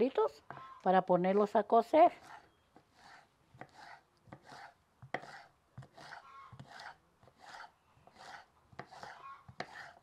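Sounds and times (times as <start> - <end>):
knife cutting on wooden board: 2.2 - 10.0.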